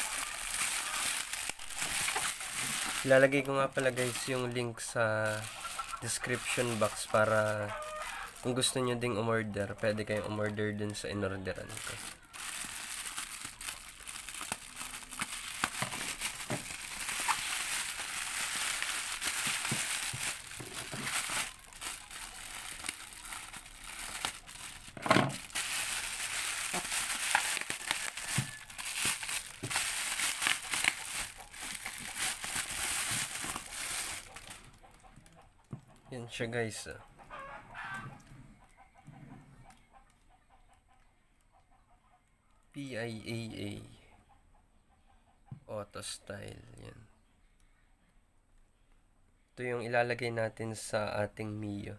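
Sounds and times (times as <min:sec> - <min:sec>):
bubble wrap crinkling: 0:00.0 - 0:35.1.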